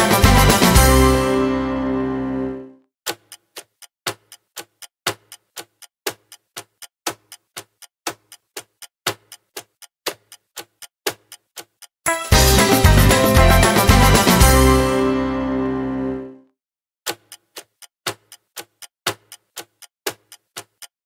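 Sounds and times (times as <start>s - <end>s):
loud music with steady beat: 0.0s - 1.1s, 12.1s - 14.9s
clock ticking: 3.1s - 14.6s, 17.1s - 21.0s.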